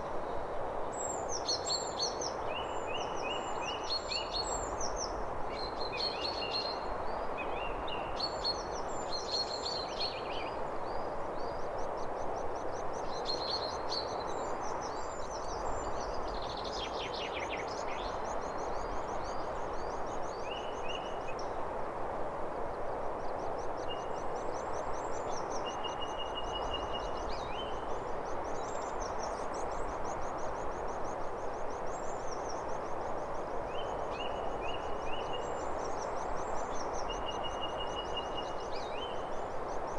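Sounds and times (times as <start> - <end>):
steady hiss: 0.0 - 39.9.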